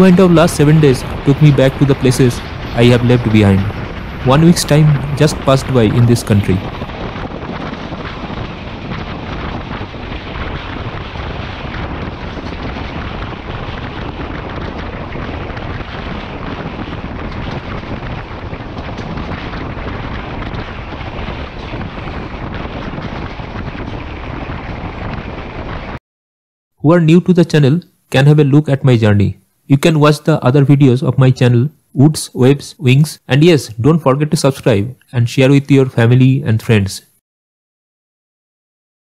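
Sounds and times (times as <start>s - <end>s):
wind rushing over microphone: 0.0s - 26.0s.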